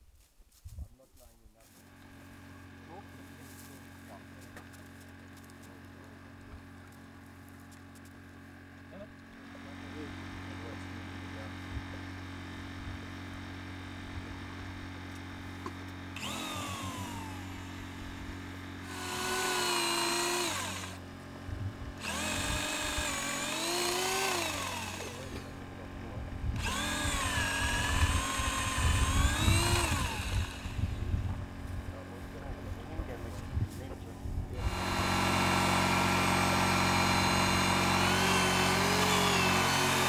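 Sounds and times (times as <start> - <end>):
steady low hum: 0.0 - 40.0
power drill running: 15.6 - 21.0, 21.9 - 31.6, 34.6 - 40.0.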